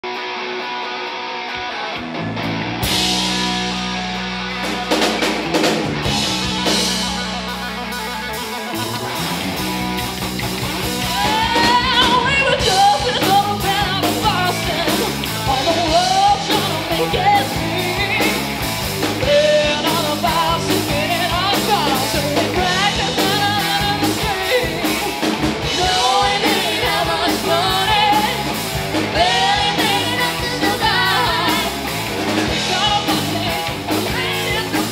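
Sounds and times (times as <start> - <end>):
electric guitar: 0.0 - 34.9
drum kit beat: 2.8 - 34.9
woman singing: 11.0 - 18.4, 19.2 - 31.8, 32.4 - 34.9.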